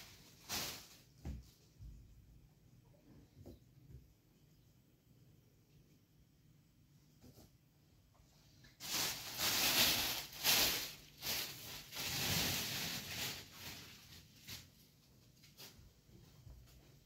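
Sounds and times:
rustling of things handled: 0.0 - 2.1, 8.5 - 17.0.

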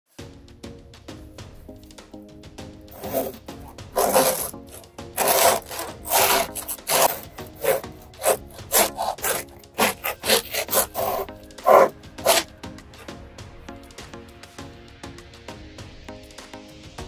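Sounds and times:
knife sawing through bread crust: 2.9 - 13.1.

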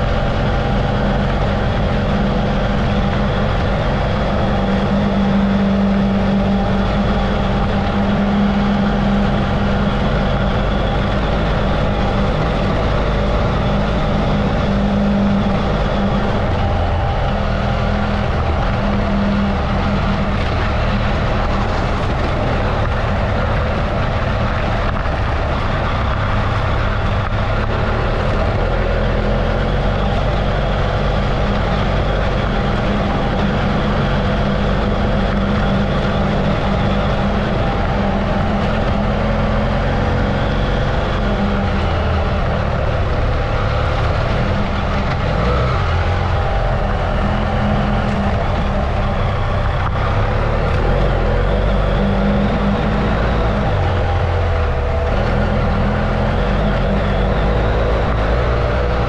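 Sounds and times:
motorcycle engine running: 0.0 - 59.0
wind and road noise: 0.0 - 59.0.

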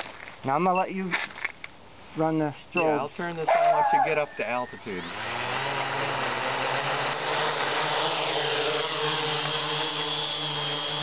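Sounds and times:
quadcopter motors buzzing: 2.8 - 11.0.

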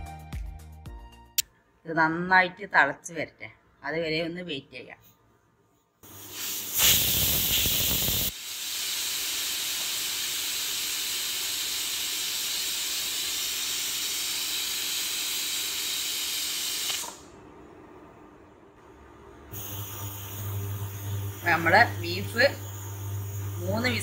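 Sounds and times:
pressure cooker whistling steam: 6.1 - 17.1, 19.6 - 24.0.

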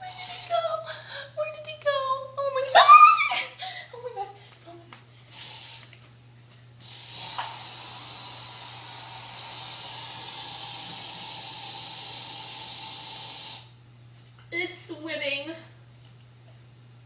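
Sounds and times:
aerosol spray hissing: 5.3 - 6.0, 6.8 - 13.7.

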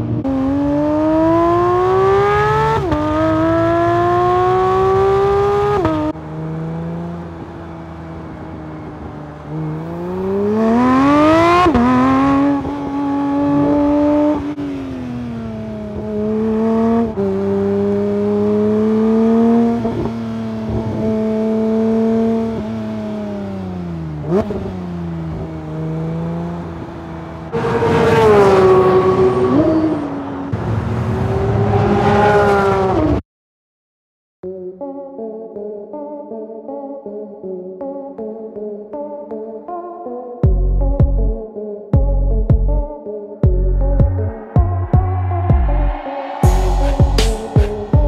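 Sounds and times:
car engine revving hard: 0.2 - 33.2.

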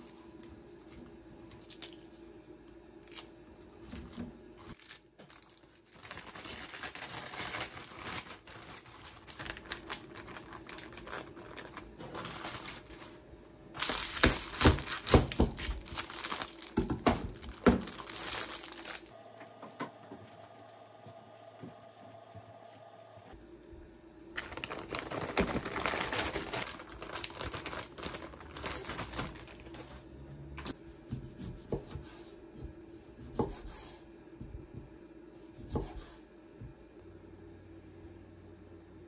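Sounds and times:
plastic packaging crinkling: 3.0 - 13.2, 13.8 - 19.2, 24.4 - 30.1.

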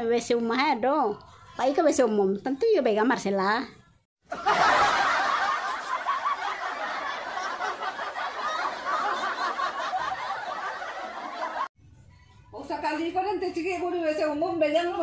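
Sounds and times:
canned laughter: 4.3 - 11.7.

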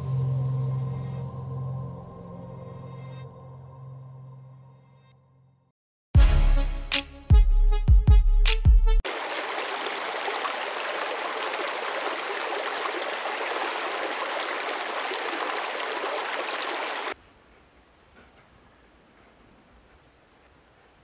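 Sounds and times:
music: 0.0 - 9.0
water spilling over a dam: 9.1 - 17.2.

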